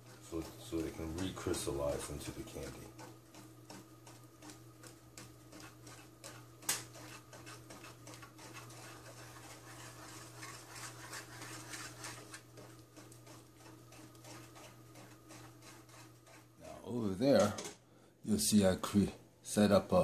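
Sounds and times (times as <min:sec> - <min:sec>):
wooden spatula scraping skillet: 0:00.0 - 0:16.8
steady low hum: 0:00.0 - 0:20.0.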